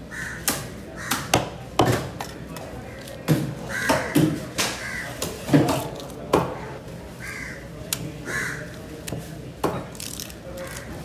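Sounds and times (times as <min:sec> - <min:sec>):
crows cawing: 0:00.1 - 0:01.3, 0:03.7 - 0:05.2, 0:06.6 - 0:08.7.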